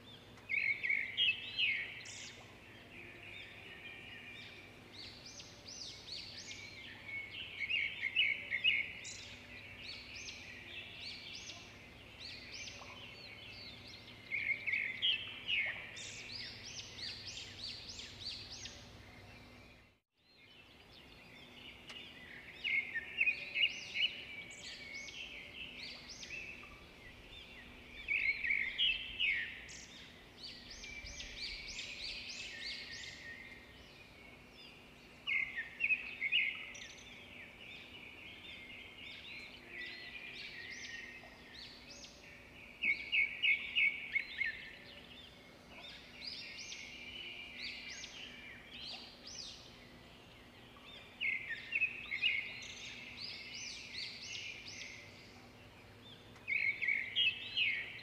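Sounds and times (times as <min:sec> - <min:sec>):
birds chirping: 0:00.0 - 0:58.0.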